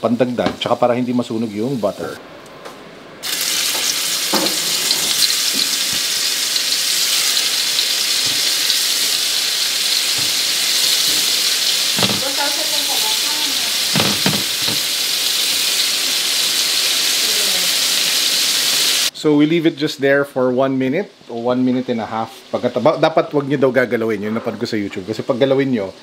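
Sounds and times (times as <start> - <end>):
scallops sizzling in a frying pan: 3.2 - 19.1.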